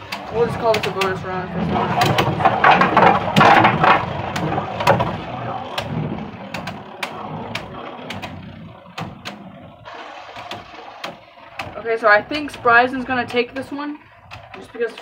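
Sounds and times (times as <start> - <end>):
tops clicking as they collide: 0.0 - 9.6
spinning tops whirring: 0.0 - 15.0.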